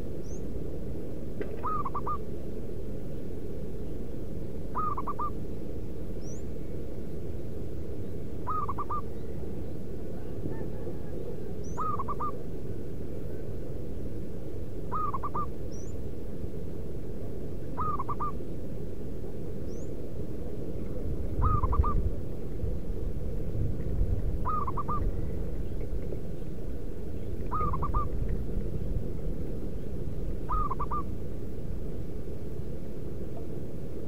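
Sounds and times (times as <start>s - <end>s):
low background rumble: 0.0s - 34.0s
dove cooing: 1.5s - 2.2s, 4.7s - 5.4s, 8.4s - 9.4s, 10.0s - 12.6s, 14.9s - 15.6s, 17.7s - 18.4s, 21.3s - 22.1s, 24.4s - 25.6s, 27.3s - 28.4s, 30.4s - 31.1s.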